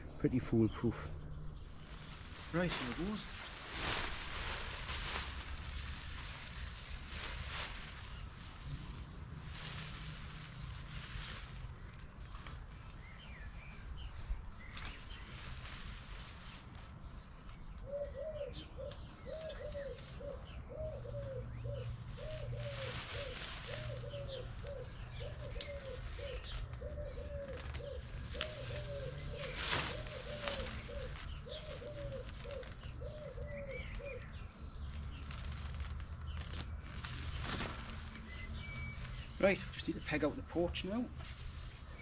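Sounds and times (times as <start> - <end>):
tent fabric rustling: 1.7 - 11.8, 14.6 - 17.0, 22.1 - 26.8, 27.4 - 33.0, 34.9 - 40.0
pigeon cooing: 17.8 - 34.3.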